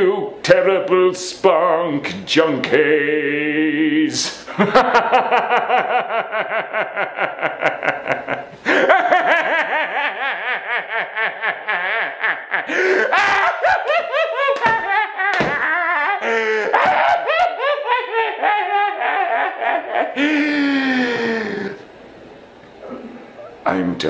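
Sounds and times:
man cackling: 4.3 - 21.8.

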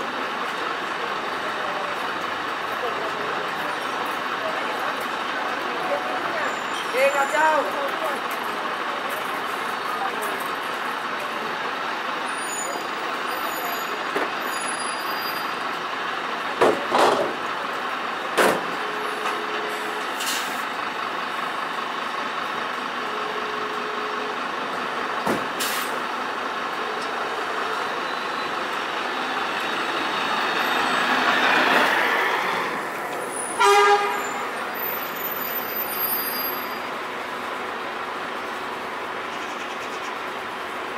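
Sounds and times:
bus pulling away: 0.0 - 40.9
street traffic: 0.0 - 40.9
bus air brakes hissing: 19.8 - 20.7, 25.4 - 26.0
horn toot: 33.4 - 34.6.

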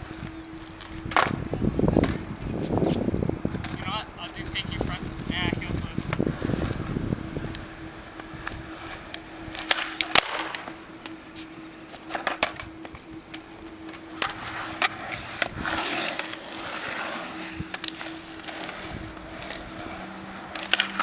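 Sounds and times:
skateboard wheels rolling: 0.0 - 21.0
skateboard tail popping clacks: 6.0 - 11.2, 17.6 - 21.0
skateboard deck landing: 9.5 - 11.2.

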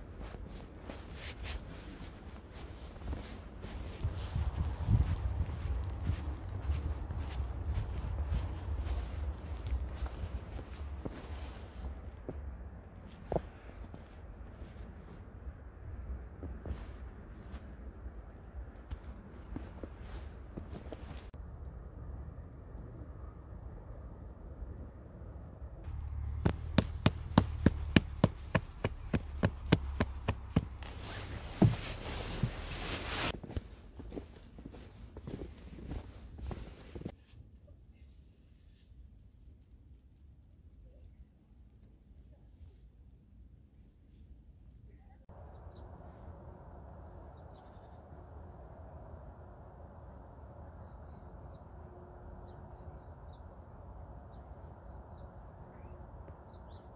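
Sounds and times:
low background rumble: 0.0 - 37.0, 44.9 - 56.9
small birds chirping: 45.0 - 46.2, 54.3 - 56.9.

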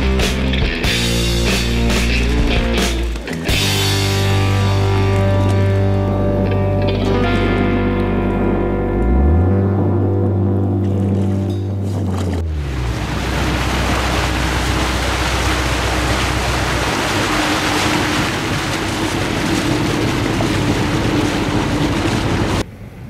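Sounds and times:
music: 0.0 - 12.4
motorboat engine hum: 0.0 - 23.0
water rushing: 10.9 - 22.6.

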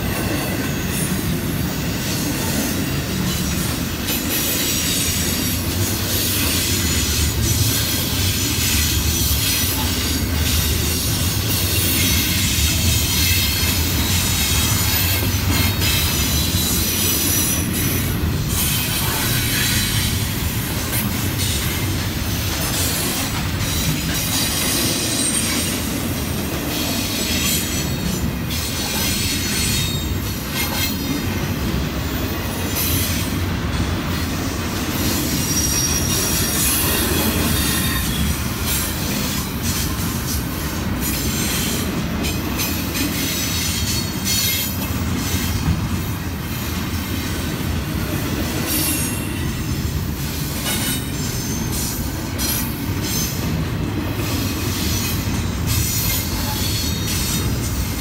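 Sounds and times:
train wheels rumbling on rails: 0.0 - 58.0
high-pitched wheel squeal: 35.4 - 38.3.

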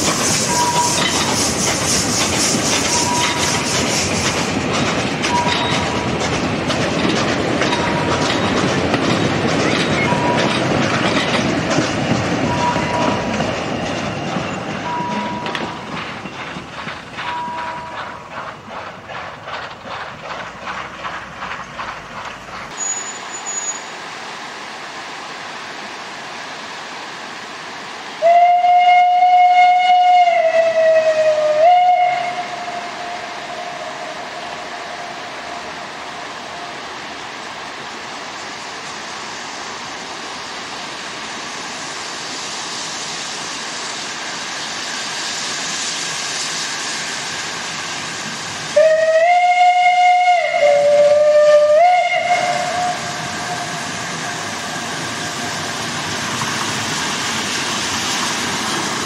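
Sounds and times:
steady steam hiss: 0.0 - 59.0
steam locomotive whistle: 0.4 - 1.2, 2.8 - 3.7, 22.7 - 23.9, 28.2 - 35.8, 48.7 - 54.5.

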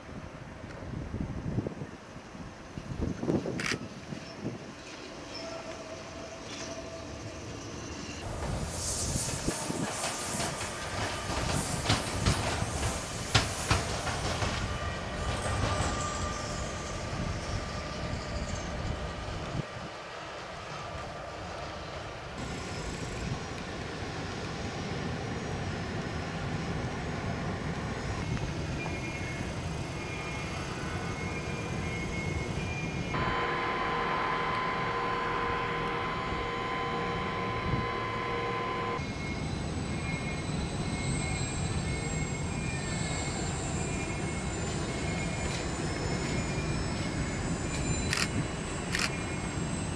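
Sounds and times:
wheels rumbling on rails: 0.1 - 49.9
locomotive high whine: 30.7 - 49.9
crane machinery running: 33.2 - 39.2
steady high tone: 33.2 - 39.2.

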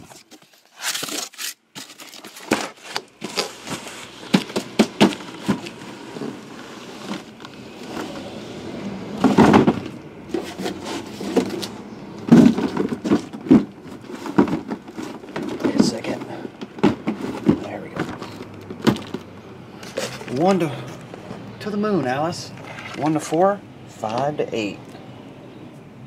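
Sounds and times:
cardboard flaps scraping and tearing: 0.0 - 8.5, 9.1 - 19.2
boxes knocking: 2.3 - 7.4, 9.1 - 19.4.

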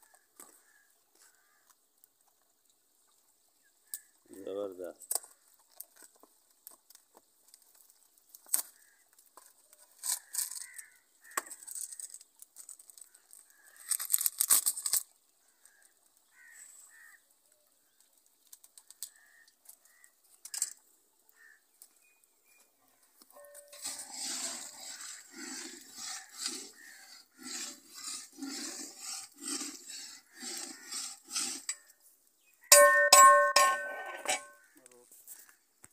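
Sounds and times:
packet crinkling: 11.6 - 15.8.

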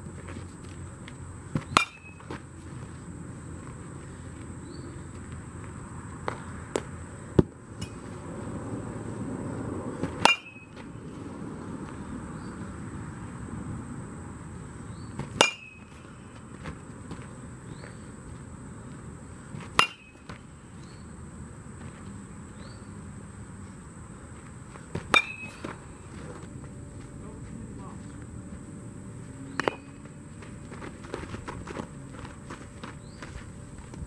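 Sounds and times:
metal bat hitting ball: 1.6 - 2.4, 7.4 - 8.0, 10.0 - 10.9, 15.2 - 16.3, 19.7 - 20.4, 25.0 - 25.8, 29.5 - 30.0.

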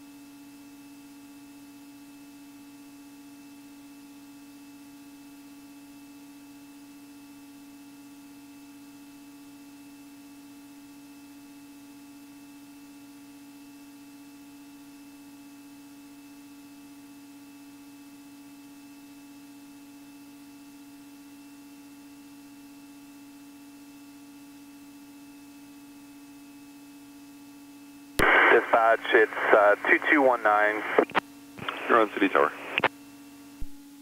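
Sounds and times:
constant hiss: 28.2 - 32.9
steady electrical hum: 28.2 - 34.0.

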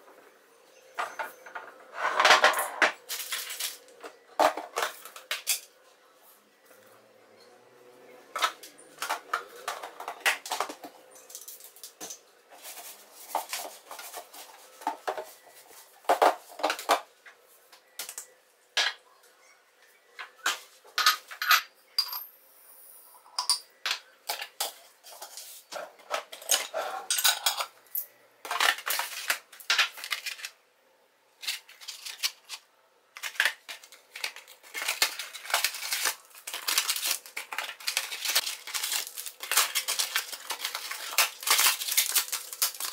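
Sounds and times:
paper sachets crinkling: 28.5 - 30.5, 31.4 - 32.6, 33.2 - 42.9.

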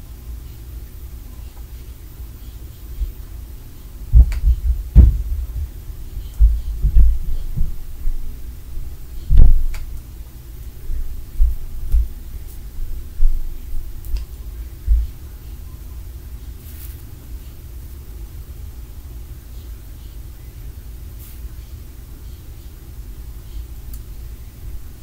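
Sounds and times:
dull thuds through floor: 4.2 - 5.8.

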